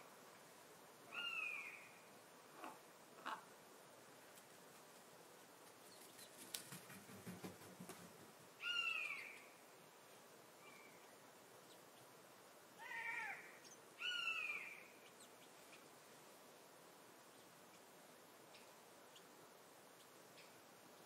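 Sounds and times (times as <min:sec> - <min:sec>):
buzzard crying: 0:12.8 - 0:13.5.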